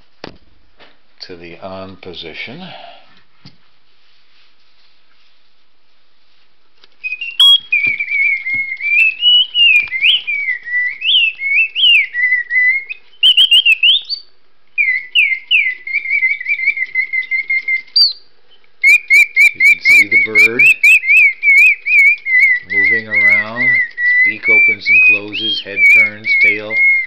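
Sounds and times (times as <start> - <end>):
mechanical bird whistling chirps: 7.0 - 18.2, 18.8 - 27.0.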